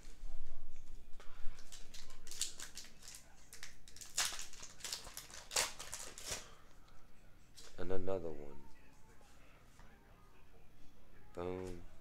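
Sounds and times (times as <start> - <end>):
foil wrappers crinkling: 1.5 - 6.6.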